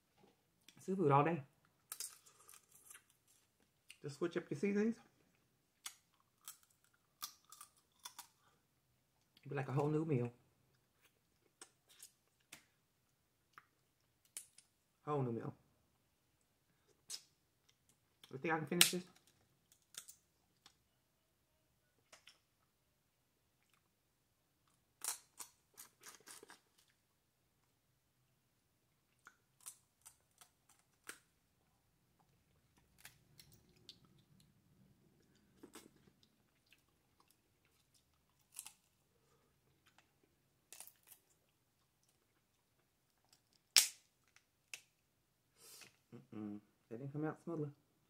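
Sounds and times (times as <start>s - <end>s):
soft chewing: 1.6s - 4.0s, 5.0s - 9.5s, 10.7s - 15.0s, 23.4s - 27.8s, 28.8s - 44.9s
crab shells cracking: 5.8s - 8.4s, 40.7s - 41.4s, 43.3s - 44.9s.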